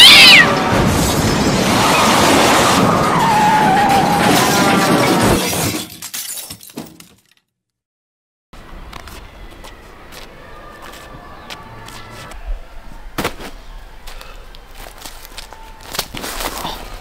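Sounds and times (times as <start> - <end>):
loud crash: 0.0 - 6.0
debris clattering: 0.6 - 7.4
glass shattering: 0.8 - 7.4.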